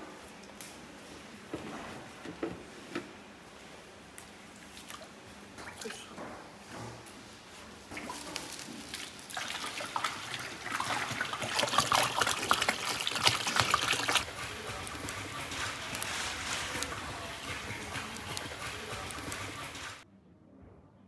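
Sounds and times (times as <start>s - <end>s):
water pouring and splashing into metal pot: 7.9s - 20.0s.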